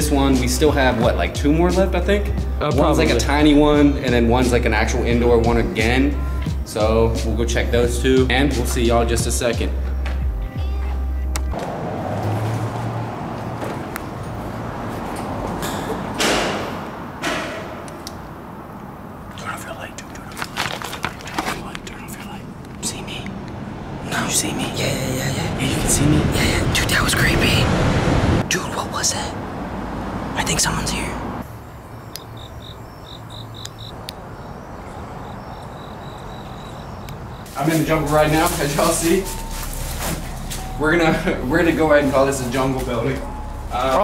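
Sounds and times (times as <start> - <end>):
echoing bangs on steel stairs: 15.7 - 18.0
crickets chirping: 31.3 - 41.4.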